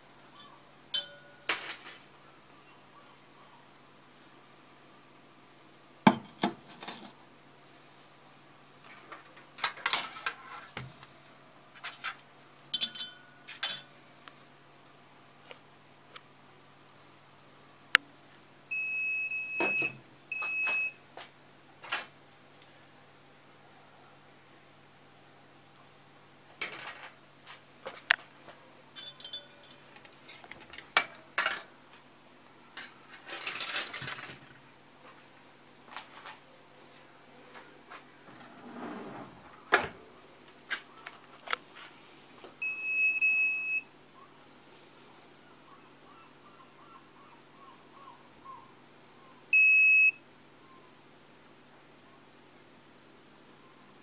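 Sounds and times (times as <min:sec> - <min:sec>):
glass beaker clinking on metal: 0:00.9 - 0:01.5, 0:12.8 - 0:13.9, 0:29.0 - 0:29.9.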